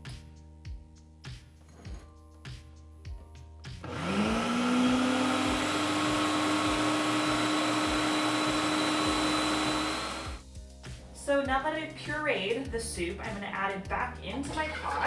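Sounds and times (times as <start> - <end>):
quiet background music with beat: 0.0 - 4.1, 5.4 - 15.0
food processor motor whine: 3.8 - 10.4.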